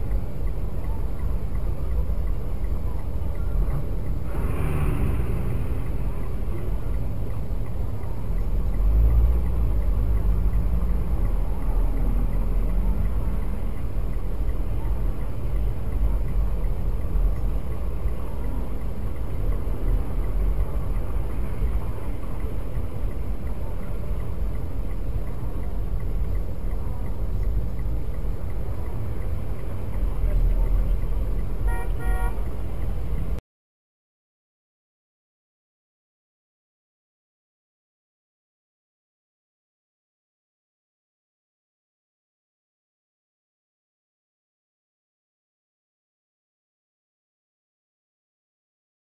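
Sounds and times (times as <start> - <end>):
car idling from inside cabin: 0.0 - 4.3, 12.4 - 33.4.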